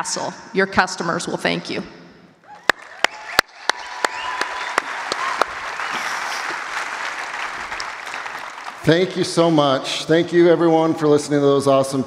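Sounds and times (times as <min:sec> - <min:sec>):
audience applauding: 0:02.5 - 0:09.6.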